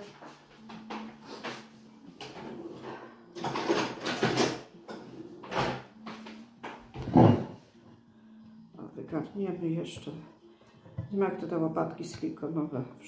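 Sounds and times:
cookware rattling and scraping: 0.0s - 5.9s.

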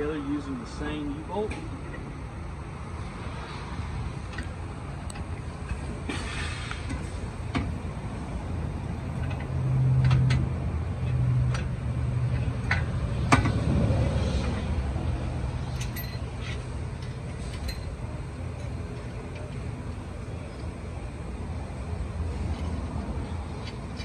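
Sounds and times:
metal clinks of bolts and nuts: 15.6s - 18.8s.

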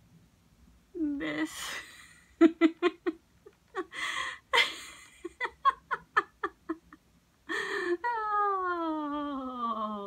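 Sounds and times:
woman laughing: 1.2s - 8.6s
breathy gasps: 3.9s - 4.5s, 7.5s - 8.0s.

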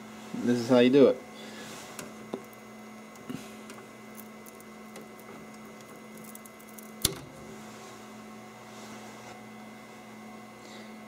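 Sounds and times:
low electrical hum: 0.0s - 11.0s
plastic snapping: 3.2s - 7.3s.

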